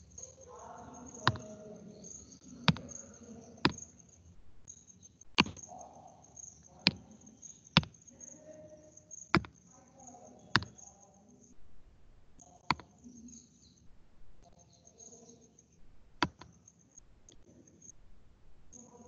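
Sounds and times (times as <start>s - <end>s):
computer mouse clicks: 1.2s - 1.7s, 2.6s - 4.0s, 5.2s - 5.8s, 6.6s - 8.1s, 9.2s - 9.6s, 10.4s - 10.9s, 12.6s - 13.0s, 16.2s - 17.5s.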